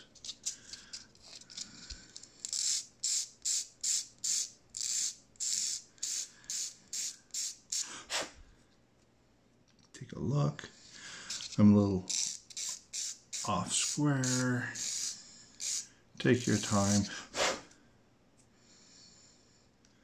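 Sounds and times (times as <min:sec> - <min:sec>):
hand file scraping: 0:11.3 - 0:17.6.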